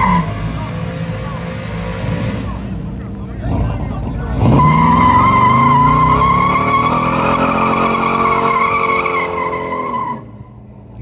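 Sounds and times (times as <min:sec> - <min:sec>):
car engine at high revs: 0:00.0 - 0:11.0
tyres squealing: 0:04.3 - 0:10.2.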